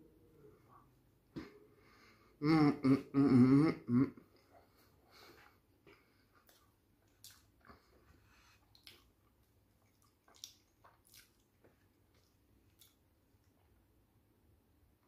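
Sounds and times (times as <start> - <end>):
chewing food: 4.4 - 13.9
wet mouth clicks: 8.6 - 9.2, 9.8 - 11.6.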